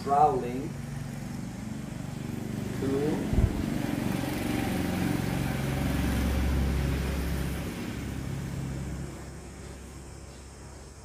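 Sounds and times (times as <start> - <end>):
engine running: 0.0 - 11.0.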